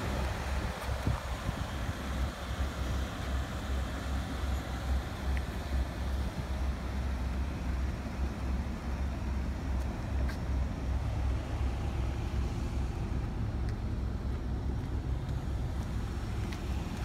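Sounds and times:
car engine idling: 0.0s - 17.0s.

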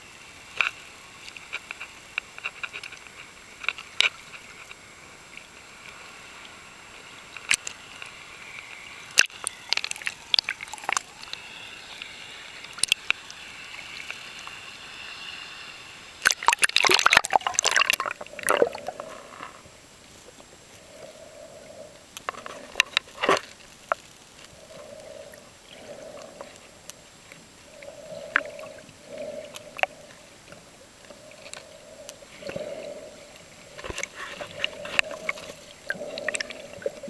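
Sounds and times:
bubbling and splashing: 9.1s - 14.2s, 16.2s - 20.4s, 27.6s - 37.0s
water sloshing: 16.2s - 20.4s, 27.2s - 37.0s.

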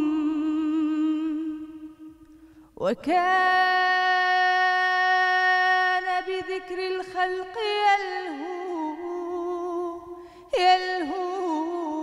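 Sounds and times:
woman singing into a microphone: 0.0s - 12.0s
singer breathing: 2.2s - 2.8s, 10.1s - 10.5s.

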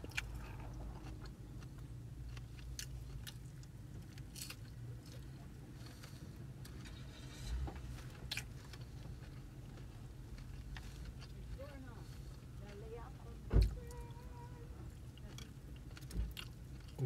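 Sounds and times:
person chewing food: 0.0s - 6.8s, 8.0s - 12.8s, 15.0s - 17.0s
low hum inside car: 0.0s - 17.0s.

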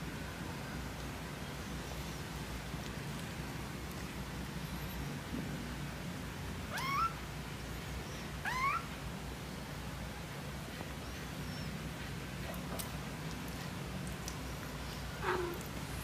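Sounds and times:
faint low hum: 0.0s - 16.0s
kittens mewing: 6.7s - 7.2s, 15.2s - 15.8s.

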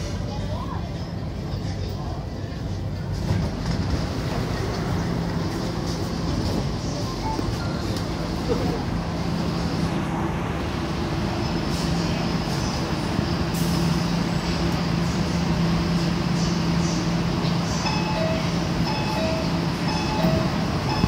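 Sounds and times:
train humming: 0.0s - 21.0s
station noise: 3.2s - 21.0s
two-tone door warning beeps: 17.8s - 21.0s.

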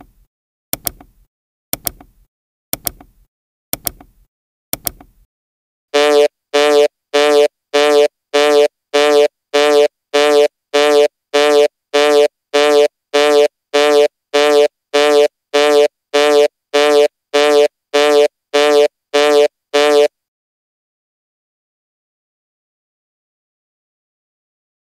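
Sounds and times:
timer alarm buzzing beeps: 6.0s - 20.1s.

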